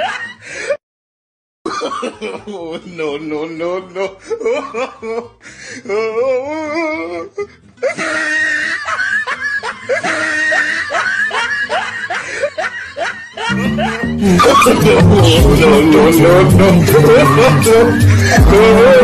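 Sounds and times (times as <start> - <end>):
person laughing: 7.8 - 19.0
loud music: 13.5 - 19.0.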